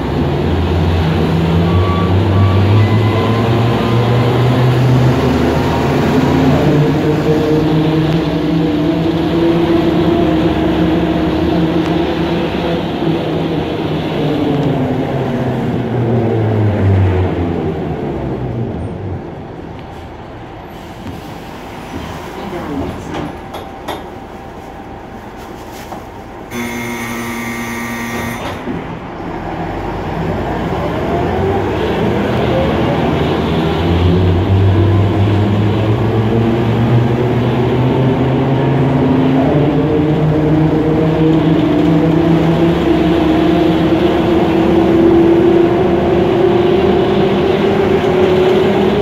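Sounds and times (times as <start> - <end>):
bus engine drone from inside: 0.0 - 49.0
electric buzzer: 26.5 - 28.7
rising drivetrain whine: 26.5 - 37.2.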